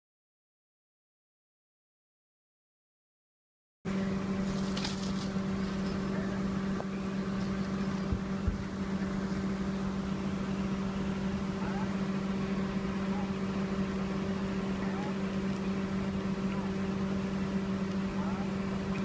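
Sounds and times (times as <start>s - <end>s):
steady mechanical hum: 3.9s - 19.0s.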